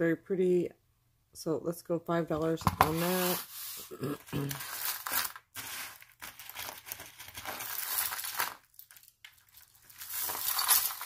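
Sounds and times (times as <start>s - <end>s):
metal jewelry chains clinking: 7.9s - 11.0s.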